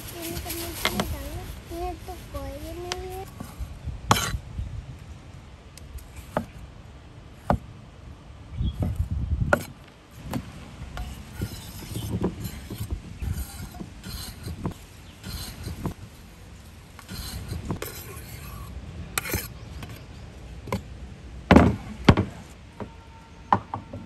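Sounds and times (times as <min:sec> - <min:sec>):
rustling: 0:00.0 - 0:04.4, 0:08.8 - 0:20.1
low rumbling: 0:00.0 - 0:23.5.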